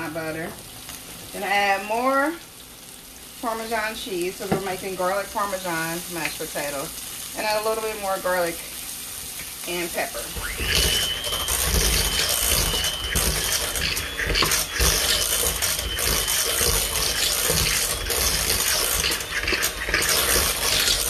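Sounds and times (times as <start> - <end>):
electric hand mixer whine: 9.7 - 21.0.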